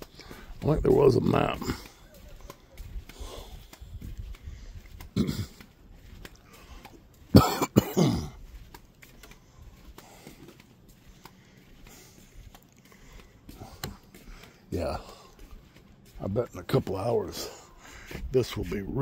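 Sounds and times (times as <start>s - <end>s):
man coughing: 5.1s - 5.7s, 7.3s - 8.4s.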